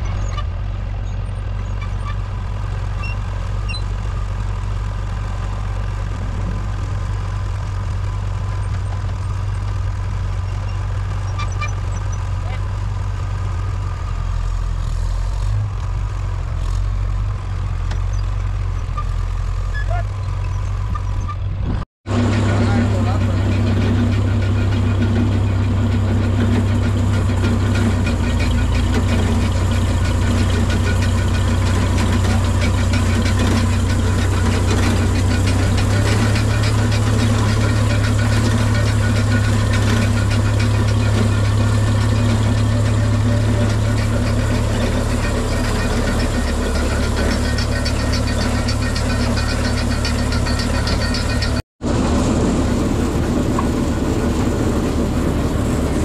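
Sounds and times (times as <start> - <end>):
tractor engine running: 0.0 - 56.0
mixer mechanical rattle: 22.1 - 56.0.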